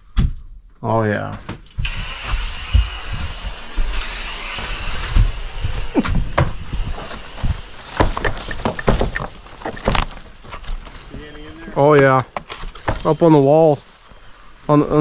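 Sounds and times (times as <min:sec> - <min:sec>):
aerosol spray hissing: 0:01.8 - 0:08.2
short knocks and bumps: 0:04.7 - 0:11.2.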